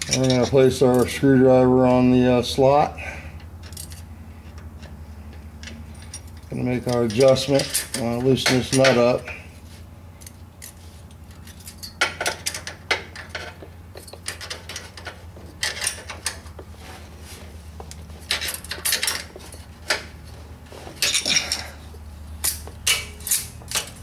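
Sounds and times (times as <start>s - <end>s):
tools clinking on metal: 0.0s - 1.1s, 5.6s - 9.2s, 21.0s - 21.8s, 22.4s - 24.0s
steady low hum: 0.0s - 24.0s.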